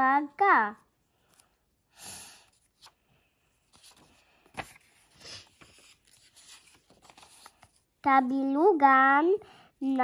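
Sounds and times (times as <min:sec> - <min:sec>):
paper cards rustling: 0:02.5 - 0:08.0.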